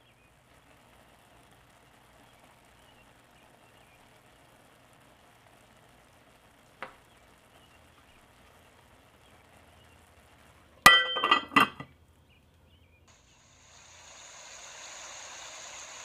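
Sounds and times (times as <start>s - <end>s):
faint steady hiss: 0.0s - 16.0s
lid clanking onto pot: 10.9s - 11.9s
lid rattling on rim: 10.9s - 11.9s.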